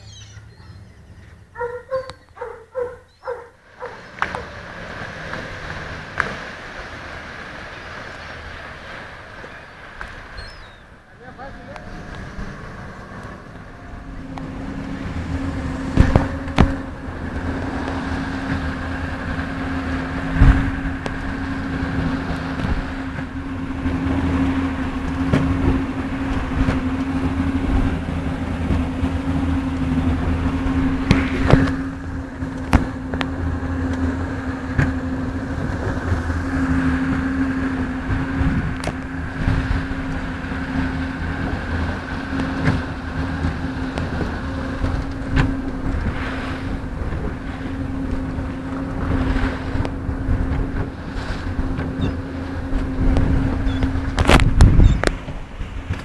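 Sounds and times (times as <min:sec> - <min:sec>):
boat engine humming: 0:00.0 - 0:56.0
water rushing from wake: 0:00.0 - 0:56.0.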